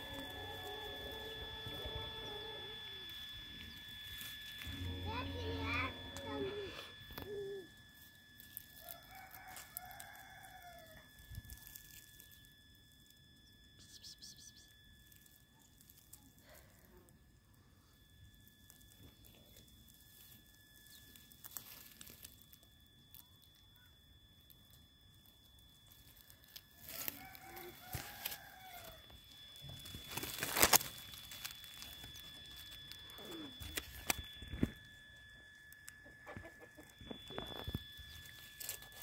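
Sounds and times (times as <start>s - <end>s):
dry grass and twigs crackling: 0.0s - 39.0s.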